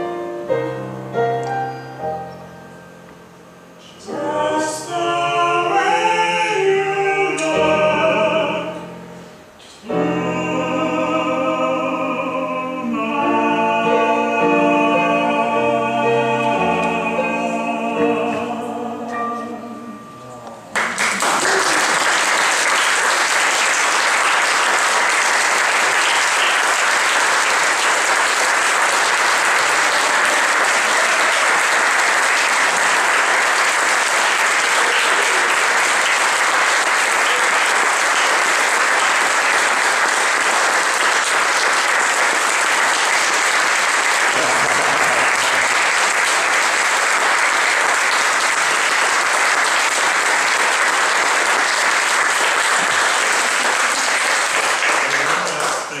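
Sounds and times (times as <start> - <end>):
audience applauding: 20.7 - 56.0.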